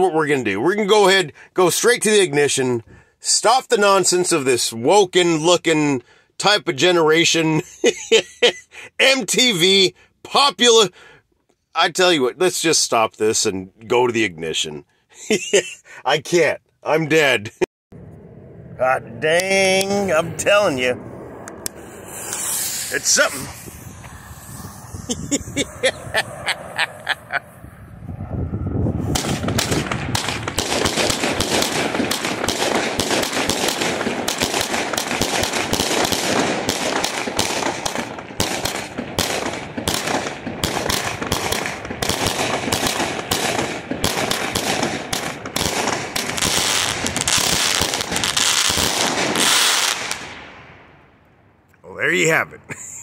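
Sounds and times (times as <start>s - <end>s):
firework cake shots and bursts: 21.8s - 24.9s, 29.2s - 50.3s.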